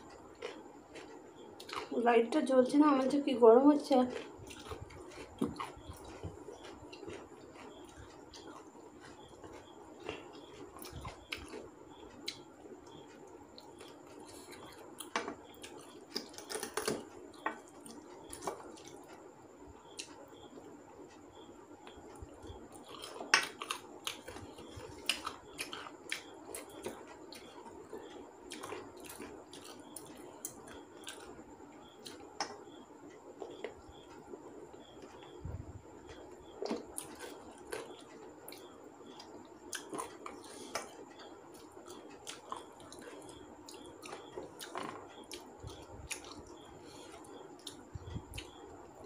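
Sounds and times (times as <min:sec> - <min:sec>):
person chewing: 0:00.1 - 0:02.0, 0:04.1 - 0:19.2, 0:21.8 - 0:31.4, 0:36.4 - 0:48.6.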